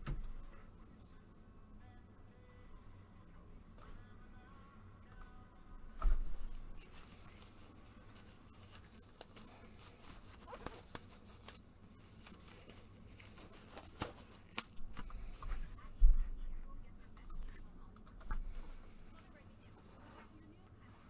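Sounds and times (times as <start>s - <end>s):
wrapper rustling and tearing: 6.8s - 14.8s.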